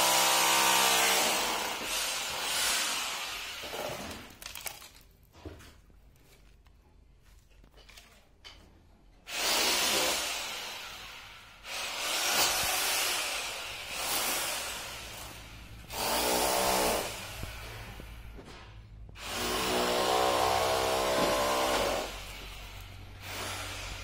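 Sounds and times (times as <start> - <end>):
power tool running: 19.2 - 24.0.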